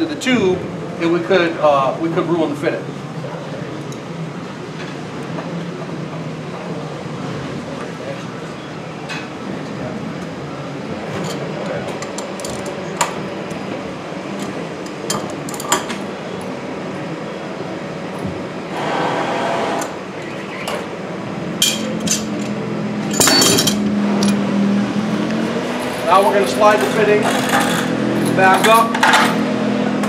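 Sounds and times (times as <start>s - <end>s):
steady background noise: 0.0s - 30.0s
clatter of tools handling: 21.6s - 24.4s
wrench clinking on metal fitting: 21.6s - 24.4s.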